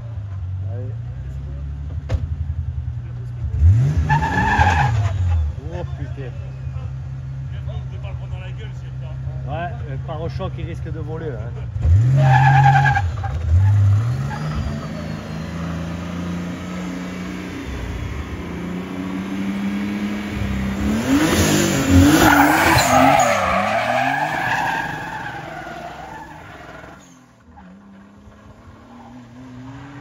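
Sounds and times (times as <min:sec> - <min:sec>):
rally car engine revving: 0:00.1 - 0:30.0
tyres squealing: 0:21.1 - 0:27.7.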